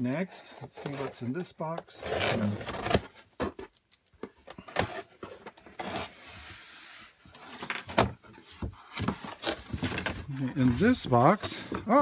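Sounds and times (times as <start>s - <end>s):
cardboard scraping and rubbing: 0.1s - 3.3s, 4.8s - 12.0s
cardboard sliding: 4.8s - 12.0s.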